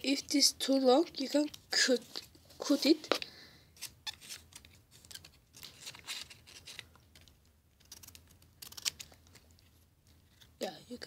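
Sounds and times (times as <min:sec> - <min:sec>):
paper clicks and rustles: 0:04.0 - 0:09.7.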